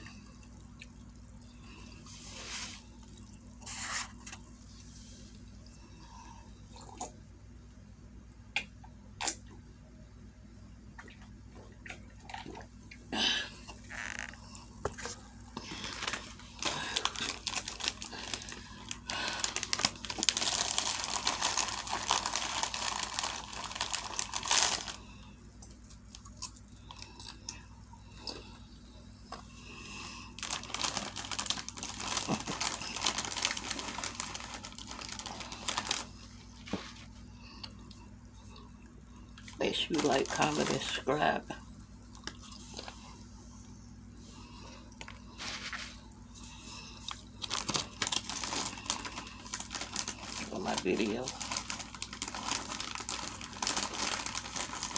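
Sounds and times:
crinkly rustling: 1.8 - 5.4, 13.8 - 25.1, 30.3 - 37.3, 39.5 - 41.2, 45.1 - 54.9
person chewing: 25.6 - 28.6.

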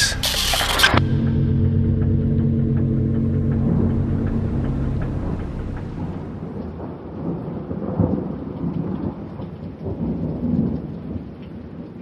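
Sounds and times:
thunder rumbling: 0.0 - 11.2
steady rain: 0.1 - 12.0.

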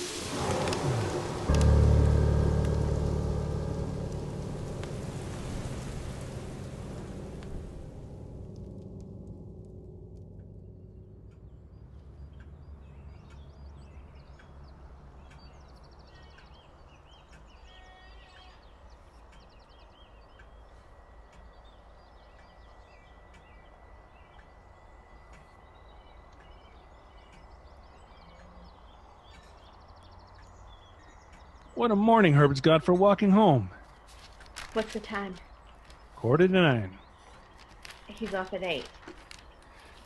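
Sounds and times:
low rumble: 0.0 - 15.7
birds chirping and trilling: 10.5 - 40.0.

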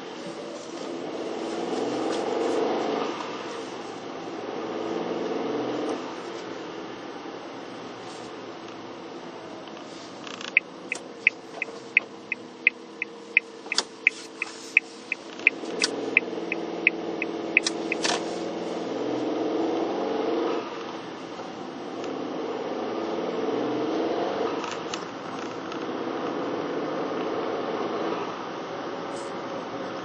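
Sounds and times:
car engine and road noise: 0.0 - 30.0
turn signal clicking: 10.3 - 18.5.

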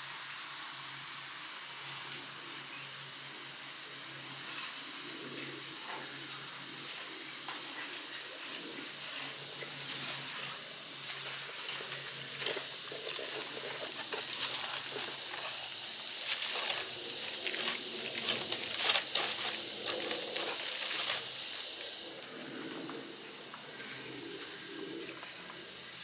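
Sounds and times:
foil crinkling: 11.0 - 21.9.

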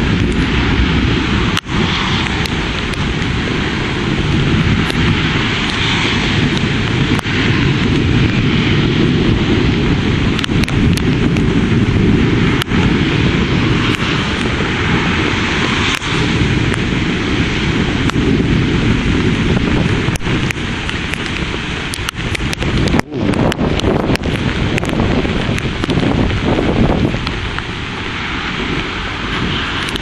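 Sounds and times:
rain rushing: 0.0 - 30.0
wind gusting over microphone: 0.0 - 30.0
sharp ticks: 20.1 - 26.1.

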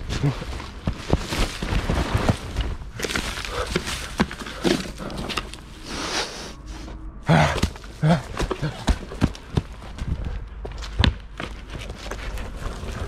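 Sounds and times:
rustling of dry leaves: 0.0 - 6.9, 11.7 - 13.0
person grunting: 7.2 - 9.1.

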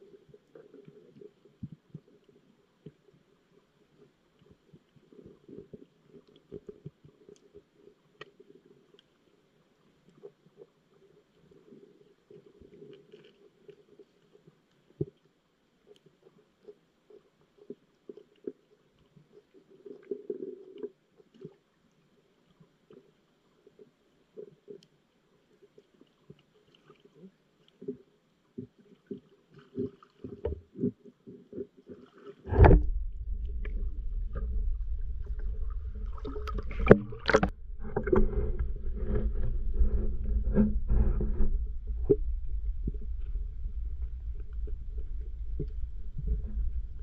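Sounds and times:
low rumble of water: 0.0 - 47.0
loud bump: 32.5 - 34.4
muffled knocks underwater: 32.5 - 47.0.

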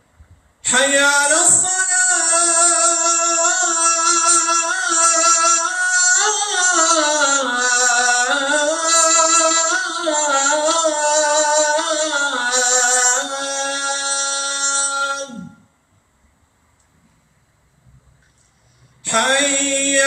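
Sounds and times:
man chanting call to prayer: 0.6 - 15.7, 19.0 - 20.0.

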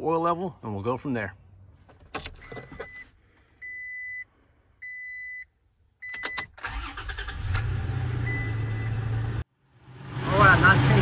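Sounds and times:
ignition key click: 6.0 - 7.3
car engine cranking and idling: 6.0 - 11.0.

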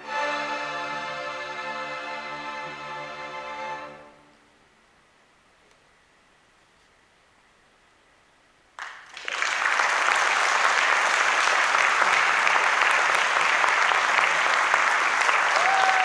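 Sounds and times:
audience applauding: 8.8 - 16.0.

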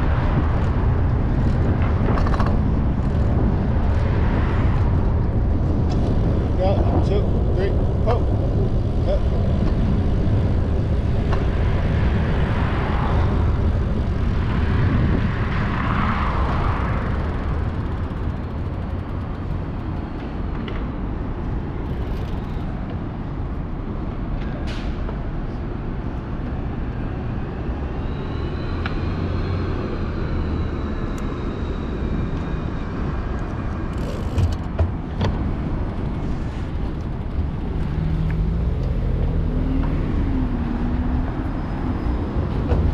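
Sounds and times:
traffic rumble: 0.0 - 42.9
vehicles passing: 0.0 - 42.9.

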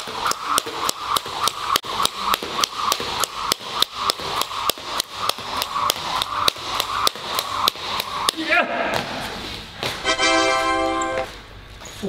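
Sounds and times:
skipping rope slapping wooden floor: 0.0 - 10.0.

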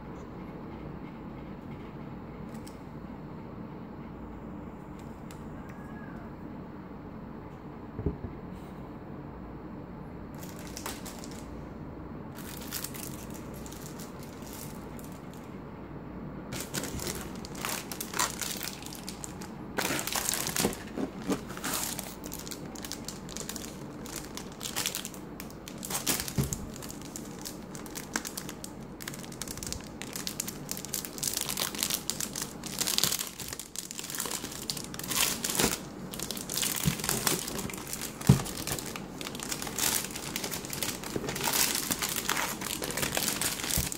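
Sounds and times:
plastic bags crinkling: 10.4 - 11.5, 12.3 - 15.4, 16.5 - 43.9.

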